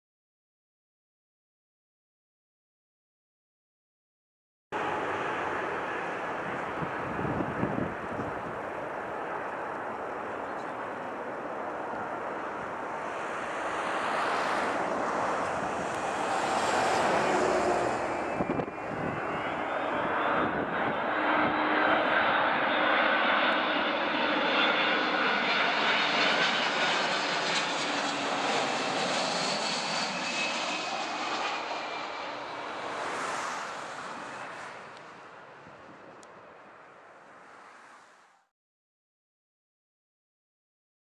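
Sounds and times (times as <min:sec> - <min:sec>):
jet plane passing overhead: 0:04.8 - 0:38.5.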